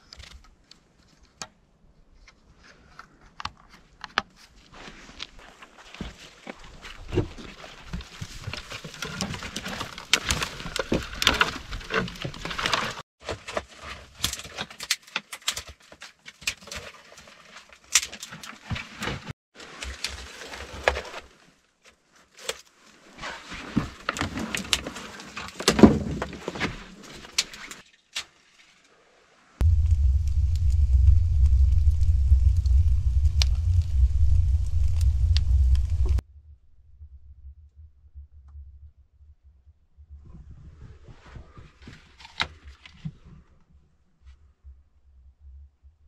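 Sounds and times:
clicks and knocks of wood: 6.0s - 19.2s, 23.8s - 28.3s.

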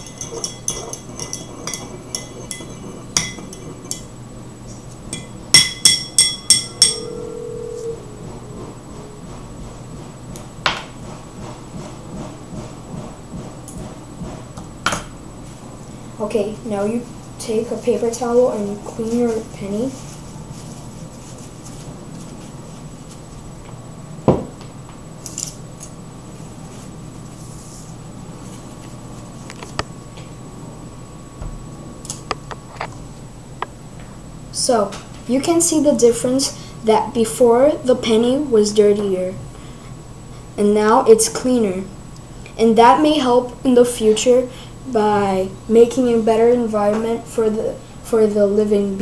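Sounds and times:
room noise: 0.0s - 49.0s
paper towel rustling: 17.0s - 23.5s.

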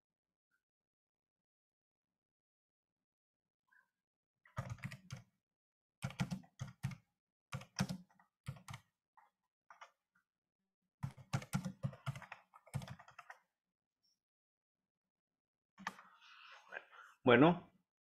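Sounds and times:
computer keyboard typing: 4.6s - 5.3s, 6.0s - 8.9s, 11.0s - 13.5s.

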